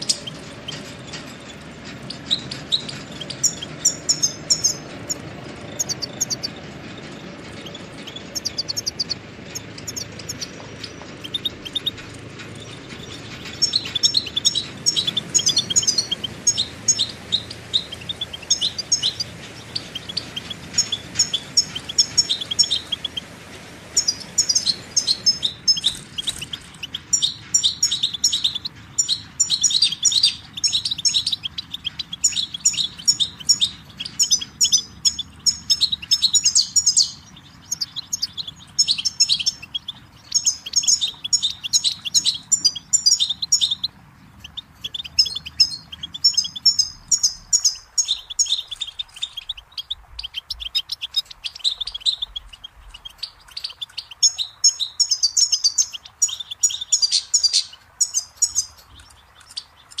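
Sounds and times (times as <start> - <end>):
goldfinch twittering and trilling: 0.0 - 60.0.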